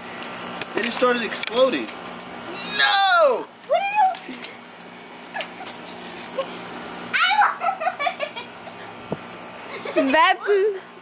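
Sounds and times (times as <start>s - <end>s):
person laughing: 7.5s - 8.6s.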